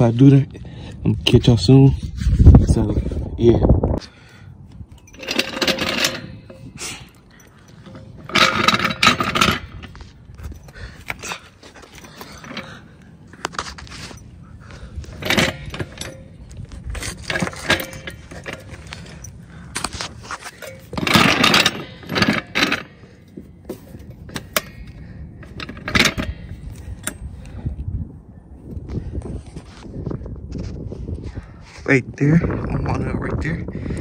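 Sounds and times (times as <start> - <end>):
metal scraping on asphalt: 4.0 - 27.6
metal jack clanking and rattling: 4.9 - 27.6.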